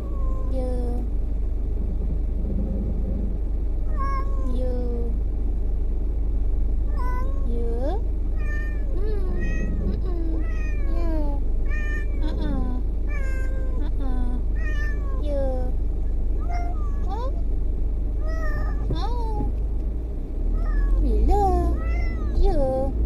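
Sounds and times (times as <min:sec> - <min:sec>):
low car rumble: 0:00.0 - 0:23.0
cat meowing: 0:03.9 - 0:04.6, 0:08.4 - 0:12.3, 0:13.1 - 0:13.8, 0:14.6 - 0:15.2, 0:16.4 - 0:17.2, 0:18.2 - 0:19.0, 0:20.6 - 0:21.0, 0:21.7 - 0:22.4.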